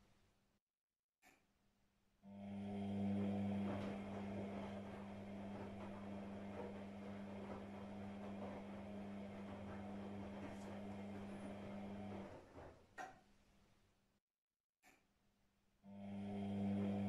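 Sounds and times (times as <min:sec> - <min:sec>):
washing machine running: 0:02.3 - 0:13.2, 0:15.9 - 0:17.0.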